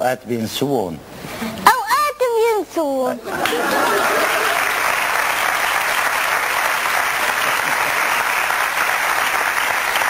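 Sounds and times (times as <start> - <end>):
audience applauding: 3.3 - 10.0.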